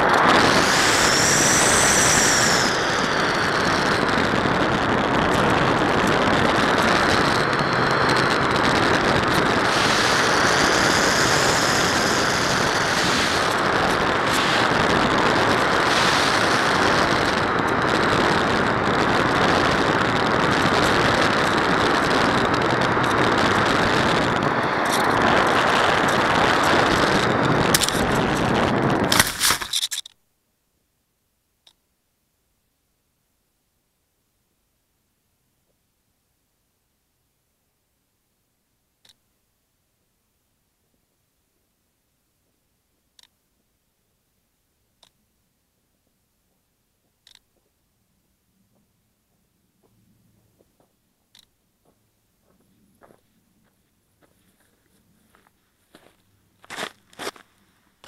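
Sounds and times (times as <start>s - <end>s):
electric motor whine: 0.0s - 29.2s
wind rushing: 0.0s - 29.2s
propeller noise: 0.0s - 30.1s.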